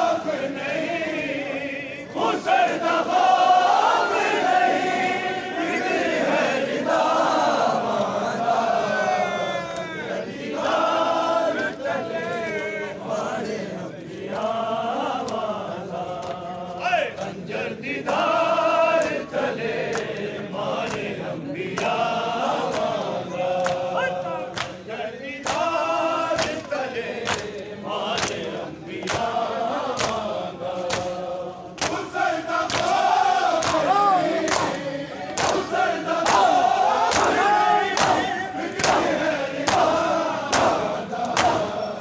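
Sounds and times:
men chanting in unison: 0:00.0 - 0:42.0
hands slapping bare chests: 0:23.6 - 0:23.9, 0:24.5 - 0:24.8, 0:25.4 - 0:25.7, 0:26.4 - 0:31.2, 0:31.8 - 0:41.8.

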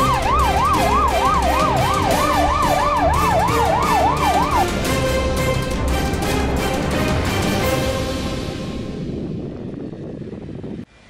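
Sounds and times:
siren yelping: 0:00.0 - 0:04.9
background music: 0:00.0 - 0:09.6.

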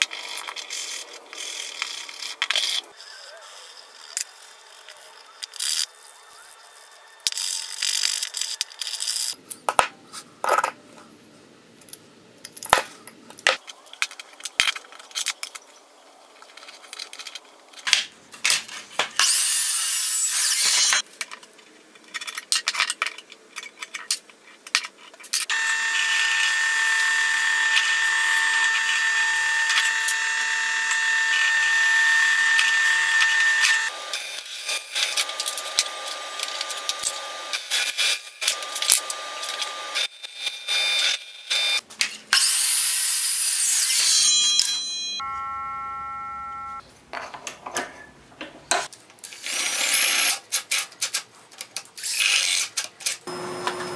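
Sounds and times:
drill press motor whining: 0:25.5 - 0:34.3, 0:53.3 - 0:53.9
miter saw cutting wood: 0:25.5 - 0:40.1, 0:53.3 - 0:53.9.

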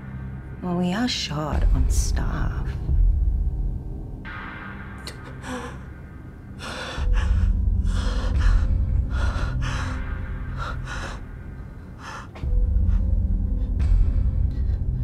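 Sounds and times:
low rumbling drone: 0:00.0 - 0:15.0
man breathing hard: 0:05.3 - 0:15.0.

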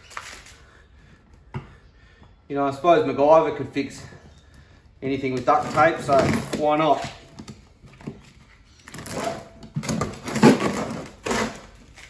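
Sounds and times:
duct tape tearing off plastic: 0:08.9 - 0:12.0.

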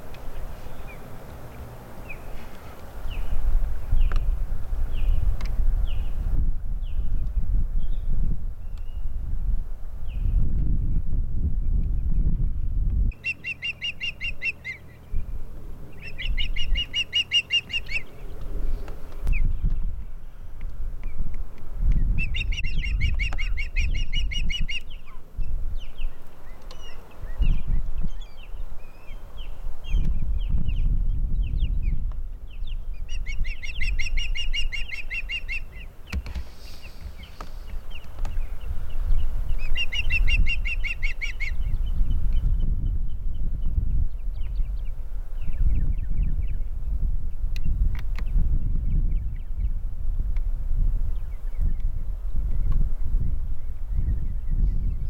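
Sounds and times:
wind rumble on microphone: 0:00.0 - 0:55.0
osprey whistled chirps: 0:13.1 - 0:15.0, 0:16.0 - 0:18.2, 0:32.6 - 0:35.9.

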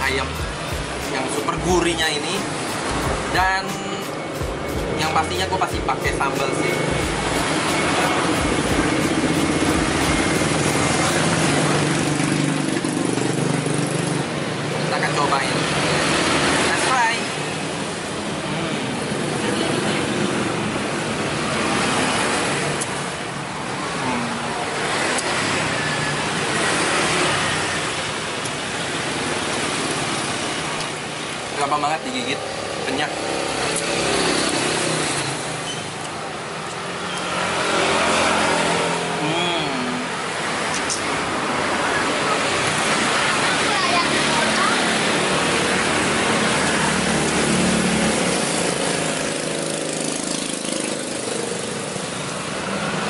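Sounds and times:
loud engine noise: 0:00.0 - 0:14.8, 0:36.8 - 0:53.0.

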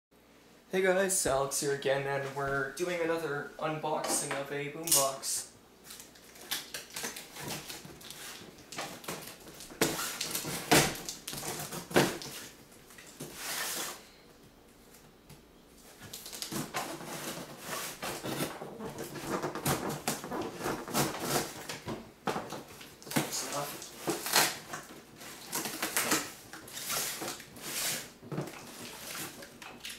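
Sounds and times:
cardboard and tape rustling: 0:05.8 - 0:14.1, 0:15.8 - 0:29.9
packing tape cut and pulled: 0:05.9 - 0:12.5, 0:16.0 - 0:21.8, 0:23.0 - 0:29.9
cardboard scraping: 0:16.6 - 0:21.8.

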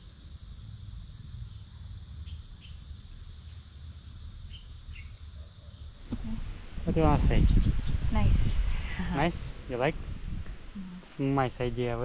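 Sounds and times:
insects droning: 0:00.0 - 0:12.0
wind rumble: 0:05.9 - 0:12.0.

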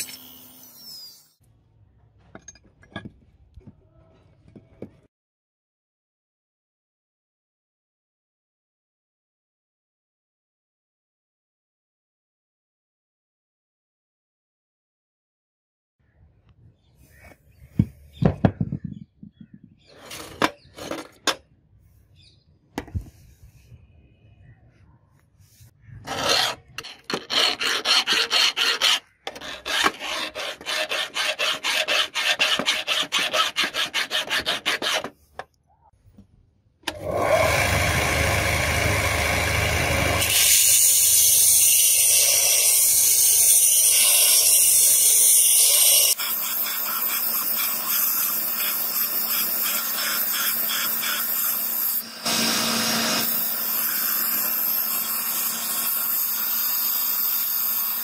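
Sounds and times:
steel file on sanding belt: 0:26.1 - 0:35.2, 0:40.2 - 0:58.0
electric belt sander running: 0:37.0 - 0:40.5, 0:50.9 - 0:58.0.

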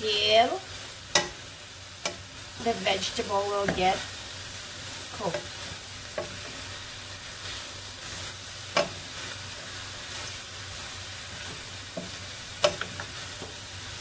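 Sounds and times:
food sizzling in a pan: 0:00.0 - 0:14.0
wooden spatula knocking on pan: 0:03.6 - 0:03.9, 0:11.5 - 0:13.6.

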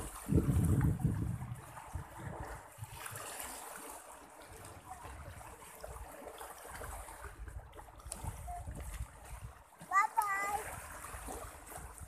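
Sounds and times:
wind rumbling on microphone: 0:00.0 - 0:03.3, 0:06.7 - 0:09.6, 0:10.4 - 0:12.0
water lapping over stony shore: 0:00.0 - 0:12.0.

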